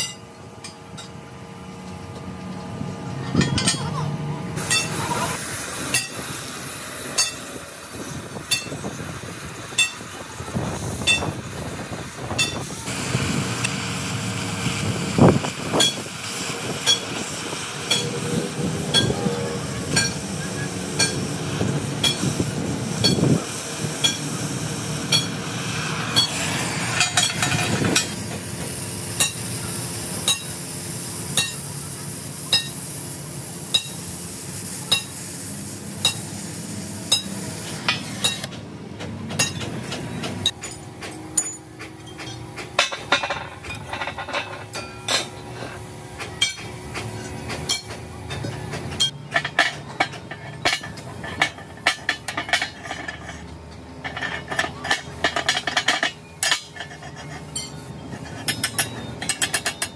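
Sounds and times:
constant background noise: 0:00.0 - 0:59.9
hammer striking metal: 0:04.6 - 0:05.0, 0:05.9 - 0:06.2, 0:07.1 - 0:07.5, 0:08.5 - 0:08.8, 0:17.8 - 0:21.4, 0:22.0 - 0:22.4, 0:24.0 - 0:25.5, 0:26.1 - 0:28.2, 0:29.2 - 0:29.6, 0:30.2 - 0:30.6, 0:31.4 - 0:31.6, 0:32.5 - 0:32.8, 0:33.7 - 0:34.1, 0:34.9 - 0:35.2, 0:36.0 - 0:36.4, 0:37.1 - 0:38.6, 0:40.4 - 0:45.4.

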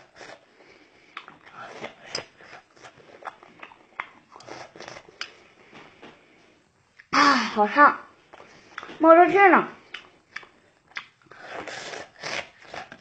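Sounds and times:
person chewing crunchy food: 0:00.0 - 0:06.4, 0:09.8 - 0:13.0
wet mouth clicks: 0:09.9 - 0:13.0.

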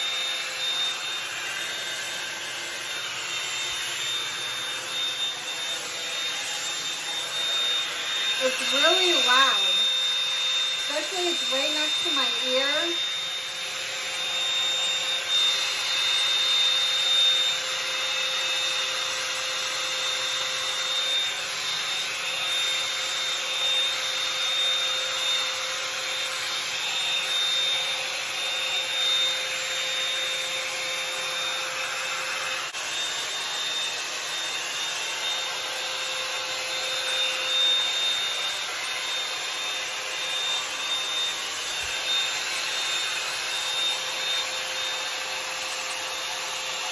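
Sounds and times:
hot-air brush blowing: 0:00.0 - 0:46.9.

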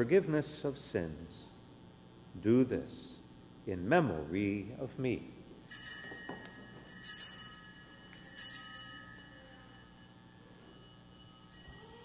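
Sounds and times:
altar bells jingling: 0:05.5 - 0:12.0.

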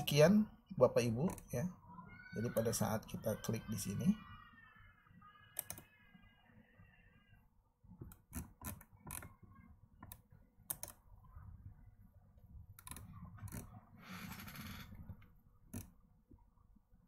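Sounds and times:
computer mouse clicks: 0:05.5 - 0:06.0, 0:08.0 - 0:09.4, 0:10.0 - 0:11.0, 0:12.8 - 0:15.9.

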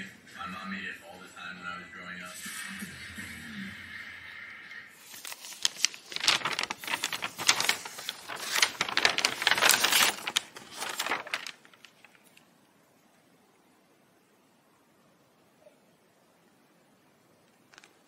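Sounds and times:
paper bag rustling: 0:05.0 - 0:12.4, 0:17.7 - 0:18.0
plastic pack crackles and clicks: 0:05.1 - 0:12.5, 0:17.7 - 0:18.0.

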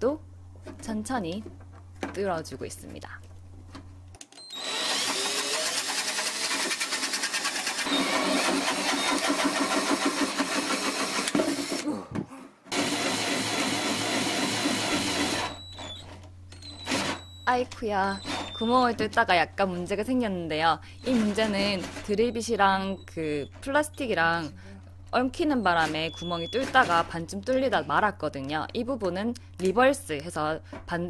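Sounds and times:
cordless drill boring through plastic: 0:04.4 - 0:11.8, 0:12.7 - 0:16.0, 0:16.6 - 0:17.4, 0:18.2 - 0:18.7.

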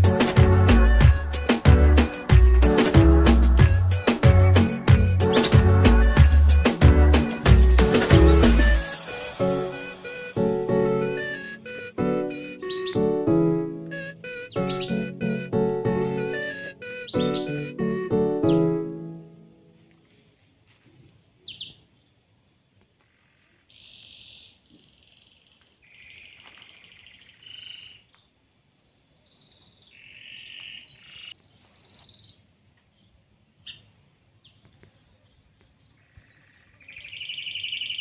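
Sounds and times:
fast bird trill: 0:04.0 - 0:07.4, 0:14.3 - 0:15.1, 0:16.9 - 0:17.6
songbirds singing: 0:04.4 - 0:06.2, 0:12.3 - 0:13.2, 0:13.8 - 0:15.5, 0:16.8 - 0:17.8, 0:21.4 - 0:22.2, 0:22.9 - 0:38.0.

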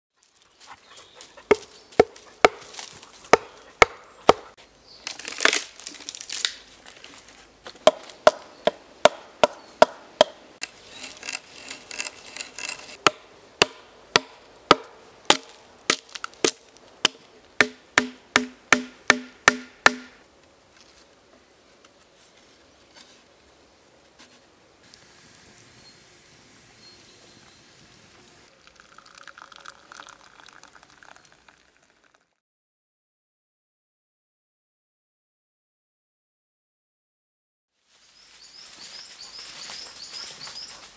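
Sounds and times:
axe knocking on wood: 0:03.4 - 0:04.4, 0:07.8 - 0:10.4, 0:17.6 - 0:20.2.

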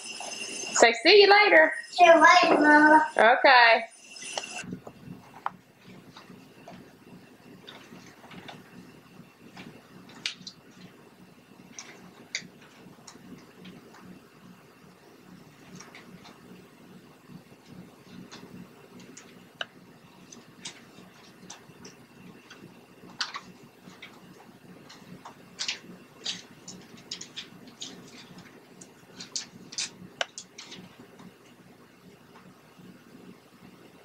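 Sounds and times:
steady low hum: 0:00.0 - 0:34.0
glossy pages crinkling: 0:24.9 - 0:31.0.

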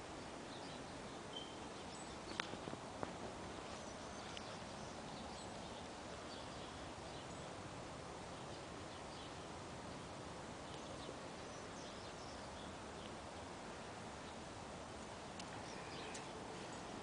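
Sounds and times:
outdoor background noise: 0:00.0 - 0:17.0
faint bird chirps: 0:00.4 - 0:02.6, 0:15.5 - 0:17.0.

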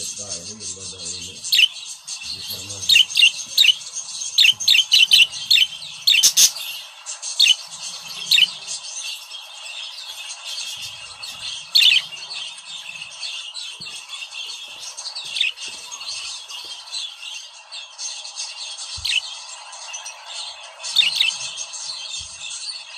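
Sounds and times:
budgerigars chirping: 0:00.0 - 0:22.9
high warbling chatter: 0:00.0 - 0:22.9.

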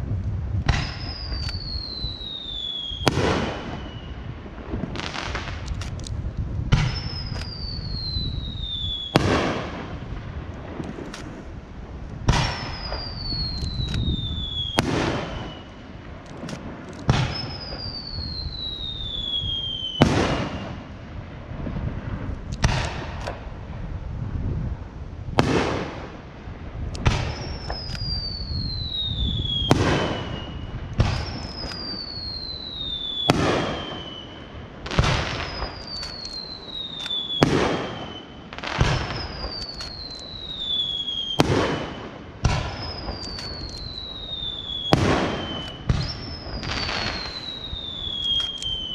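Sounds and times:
falling firework whistles: 0:00.6 - 0:05.6, 0:06.7 - 0:10.0, 0:12.3 - 0:16.0, 0:17.0 - 0:21.0, 0:27.0 - 0:48.9
fireworks bangs: 0:00.6 - 0:48.9.

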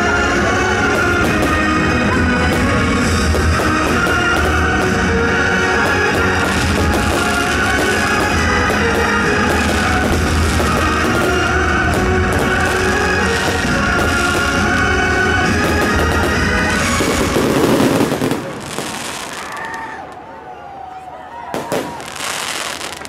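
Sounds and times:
loud rock music: 0:00.0 - 0:18.2.

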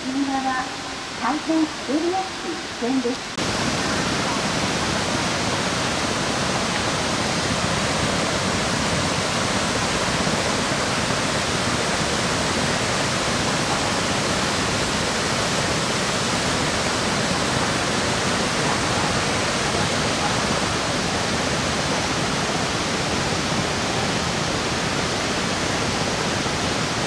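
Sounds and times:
whitewater rushing over rocks: 0:00.0 - 0:27.0.

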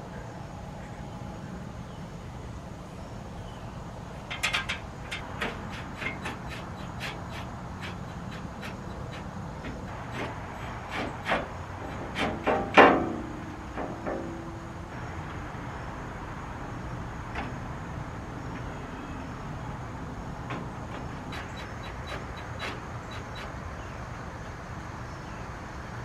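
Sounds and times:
metal parts and tools knocking: 0:04.2 - 0:14.6, 0:20.4 - 0:23.6.

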